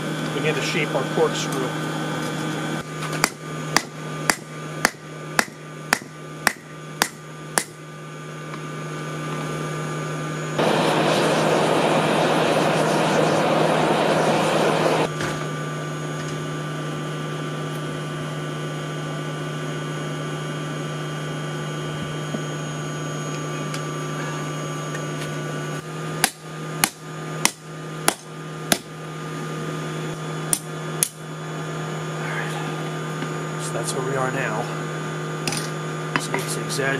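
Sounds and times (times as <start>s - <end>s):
steady electric hum: 0.0s - 36.9s
hammer striking metal on anvil: 3.2s - 7.8s, 26.2s - 28.9s
forge air blast rushing: 10.6s - 15.1s.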